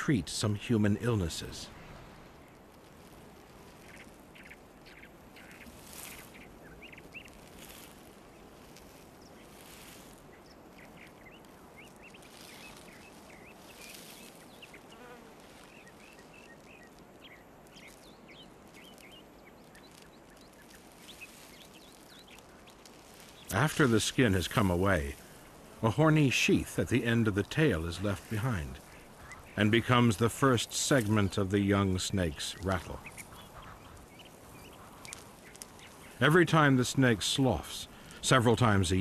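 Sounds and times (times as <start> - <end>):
insects buzzing: 0.0 - 39.0
soft steady hiss: 0.0 - 39.0
small high chirps: 2.5 - 23.6, 32.6 - 36.3.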